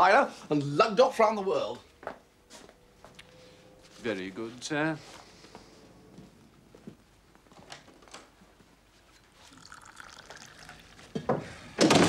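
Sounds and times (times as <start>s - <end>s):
liquid trickling from a pot: 9.3s - 11.2s.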